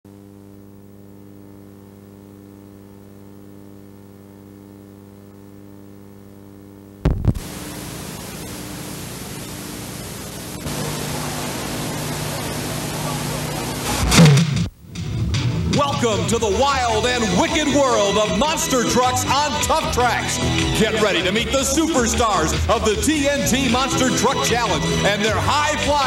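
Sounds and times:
static hiss: 0.1 - 15.0
electrical hum: 0.1 - 15.7
loud click: 7.1 - 7.5.

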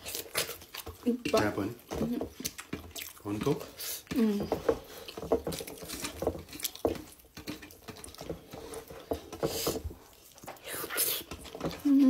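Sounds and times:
wet chewing and lip-smacking: 0.0 - 4.4, 5.0 - 9.0.

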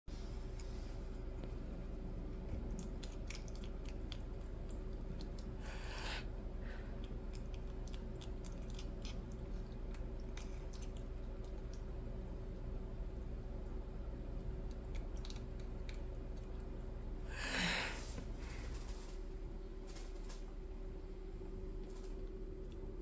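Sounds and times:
cat chewing on a stick: 0.2 - 12.7, 14.2 - 17.0.

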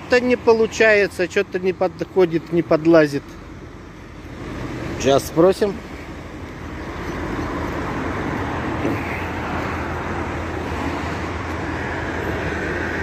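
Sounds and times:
diesel truck engine idling: 0.0 - 13.0.

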